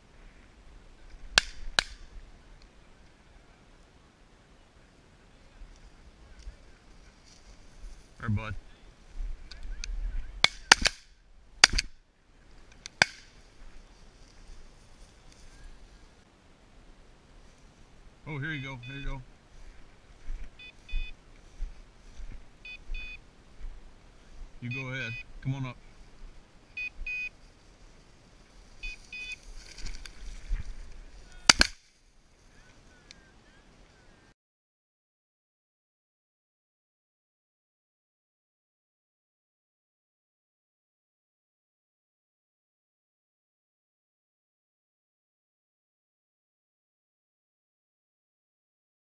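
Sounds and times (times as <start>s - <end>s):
brushing through dry grass: 5.7s - 8.3s, 13.3s - 16.2s, 19.4s - 24.5s, 27.3s - 33.0s
shotgun shots: 10.4s - 11.9s, 31.5s - 31.8s
short electronic beeps: 18.8s - 19.1s, 20.6s - 21.2s, 22.6s - 23.2s, 24.7s - 25.3s, 26.8s - 27.3s, 28.8s - 29.4s.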